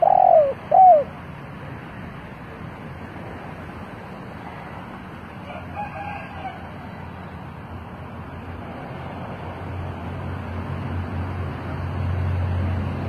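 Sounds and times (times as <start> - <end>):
rooster crowing: 5.4 - 7.0.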